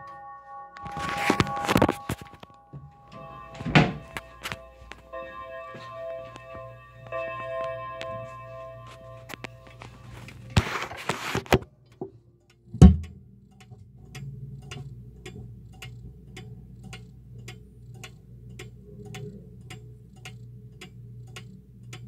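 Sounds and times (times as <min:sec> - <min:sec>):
clock ticking: 0:01.3 - 0:10.7, 0:11.5 - 0:22.0
loud thump: 0:12.8 - 0:13.2.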